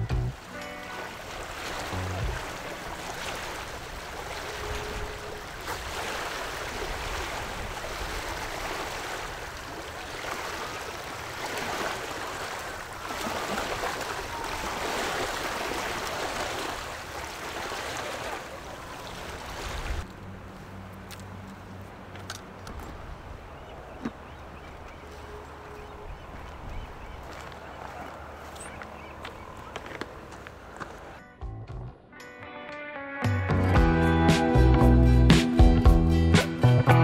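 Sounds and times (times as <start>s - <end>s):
ocean surf washing ashore: 0.4s - 22.1s.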